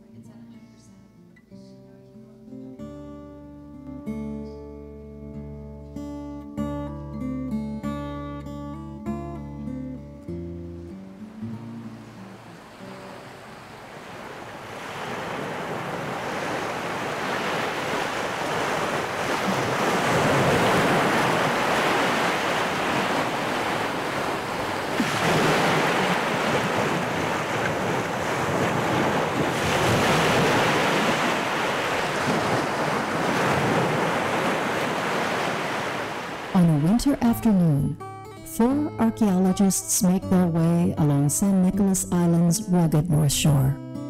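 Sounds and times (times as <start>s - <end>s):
waves breaking: 10.6s - 37.7s.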